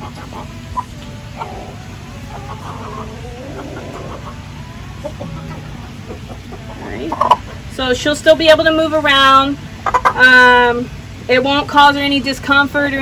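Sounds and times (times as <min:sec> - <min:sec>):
chicken clucking: 0:00.0 - 0:07.8, 0:09.2 - 0:10.6
low background noise: 0:00.0 - 0:13.0.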